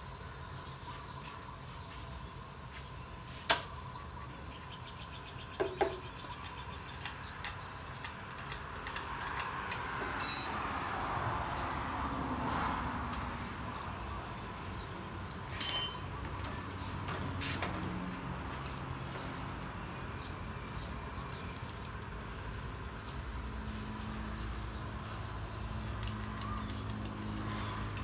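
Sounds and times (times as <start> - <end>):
sharp click of metal tools: 7.0 - 10.6, 15.6 - 16.1
ringing metallic clinks: 10.2 - 10.6, 15.6 - 16.2.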